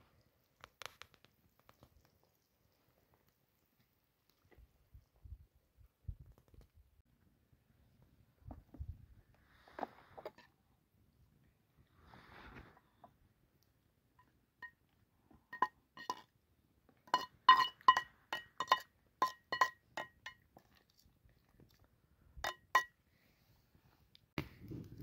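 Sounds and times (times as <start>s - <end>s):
knife clinking on frying pan: 17.1s - 20.4s, 22.5s - 22.9s.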